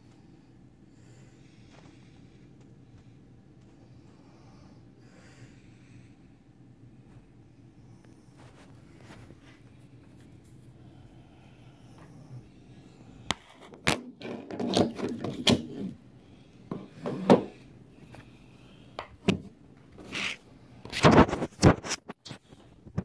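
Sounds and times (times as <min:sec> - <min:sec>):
plastic scraping and rubbing: 0:13.3 - 0:16.0, 0:19.2 - 0:23.0.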